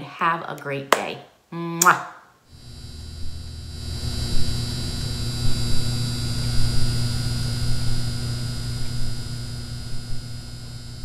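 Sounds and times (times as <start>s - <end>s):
low electrical hum with whine: 2.4s - 11.0s
electrical crackles: 2.5s - 11.0s.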